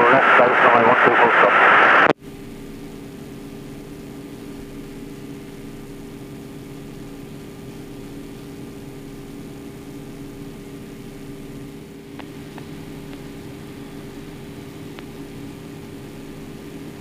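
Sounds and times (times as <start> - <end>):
radial aircraft engine drone: 0.0 - 17.0.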